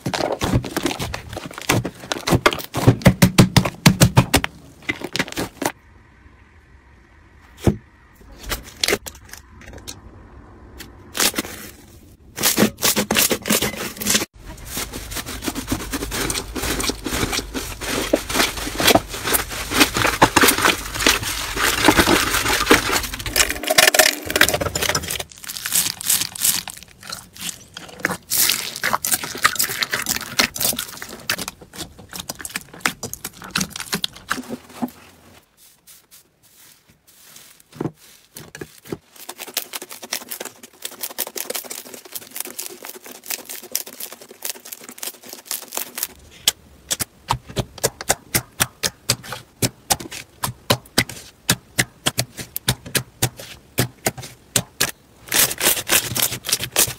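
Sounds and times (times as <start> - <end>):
hands squelching slime: 14.6 - 34.8.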